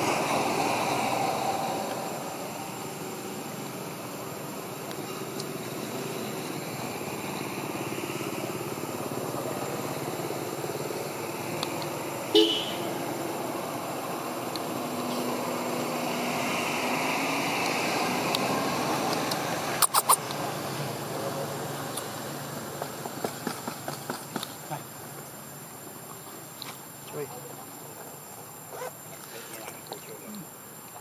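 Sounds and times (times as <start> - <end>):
small engine hum: 0.0 - 31.0.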